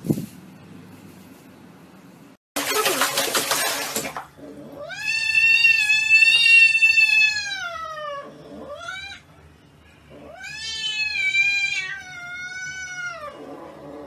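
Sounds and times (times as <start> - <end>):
cat meowing: 10.2 - 13.4.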